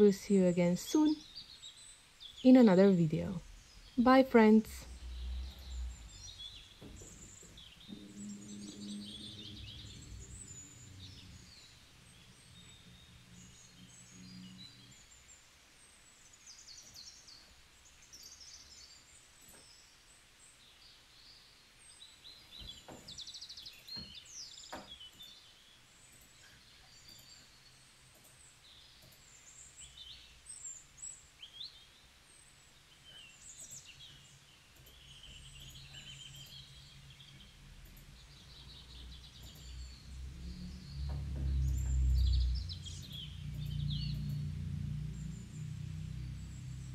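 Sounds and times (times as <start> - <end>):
low steady hum: 0.0 - 20.5, 21.1 - 46.9
birds chirping: 0.0 - 46.9
soft clicks: 37.8 - 38.3, 39.3 - 39.8.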